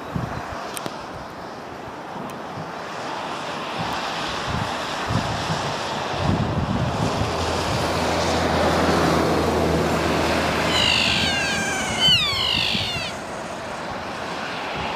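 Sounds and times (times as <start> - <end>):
rain and wind hiss: 0.0 - 11.0
kea calling: 10.5 - 13.7.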